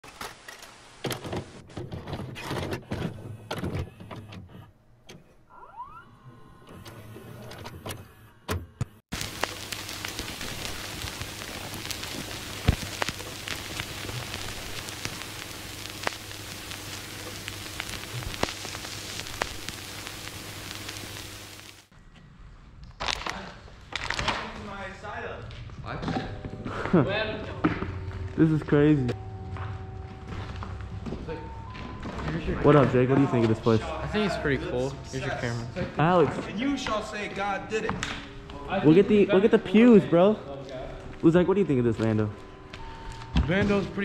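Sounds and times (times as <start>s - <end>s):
steady hiss with crackles: 0.1s - 1.6s, 9.1s - 21.9s, 28.4s - 35.7s
mechanical clicks and clunks: 0.2s - 5.4s.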